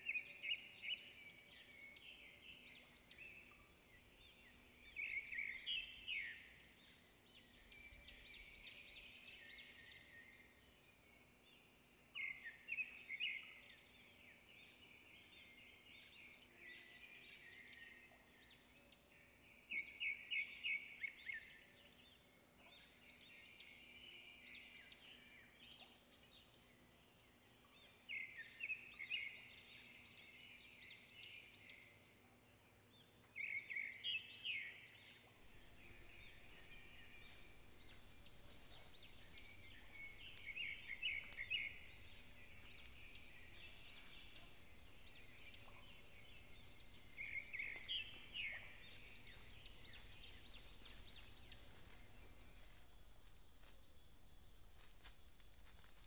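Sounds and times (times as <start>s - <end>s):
rapid high bird chirping: 35.6s - 51.4s.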